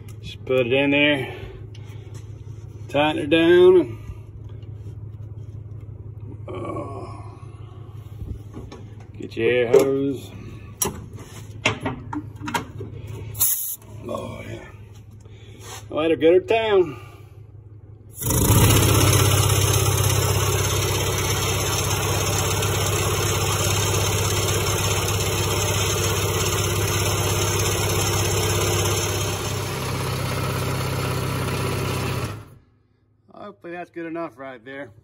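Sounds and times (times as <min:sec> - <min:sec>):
air-powered paint shaker running: 0:18.2 - 0:32.6.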